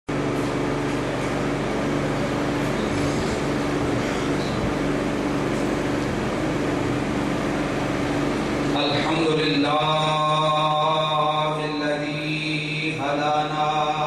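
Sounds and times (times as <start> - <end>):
man chanting melodic recitation: 8.6 - 14.0.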